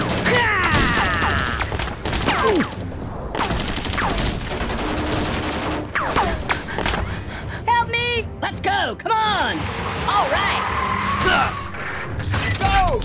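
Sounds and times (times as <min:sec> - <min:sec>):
rapid blaster gunshots: 0:00.0 - 0:06.5.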